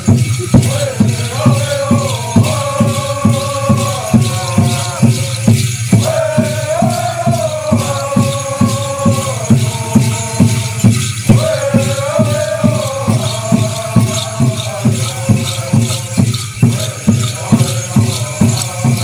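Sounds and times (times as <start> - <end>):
rattles shaking: 0.0 - 19.0
steady drum beat: 0.0 - 19.0
chorus chanting in unison: 0.6 - 19.0.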